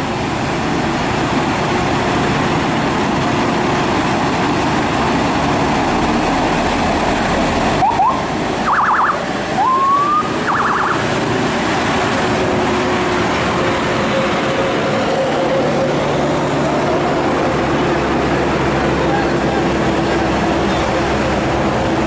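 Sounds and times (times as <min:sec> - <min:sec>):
truck passing: 0:00.0 - 0:22.0
high warbling tone: 0:07.8 - 0:11.4.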